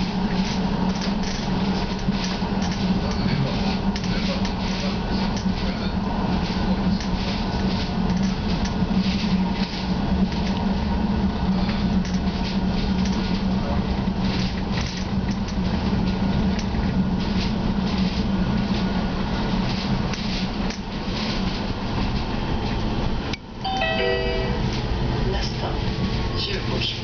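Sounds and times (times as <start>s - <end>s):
tram cabin hum and rumble: 0.0s - 27.0s.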